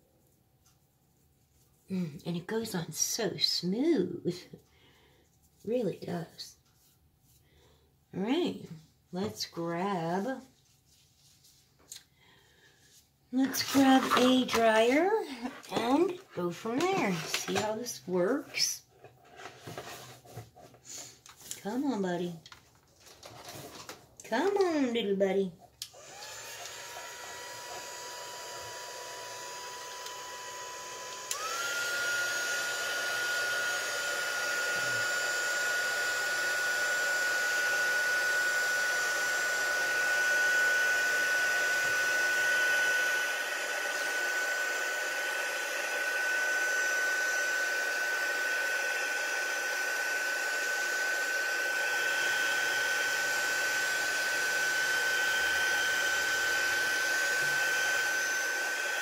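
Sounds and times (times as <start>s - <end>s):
heat tool blowing air: 25.9s - 59.0s
heat tool whine: 25.9s - 59.0s.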